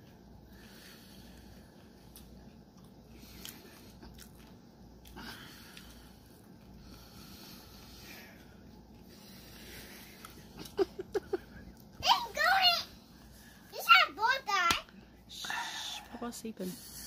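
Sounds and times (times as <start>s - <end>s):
man breathing heavily and sniffling: 0.2s - 2.2s, 3.0s - 11.7s.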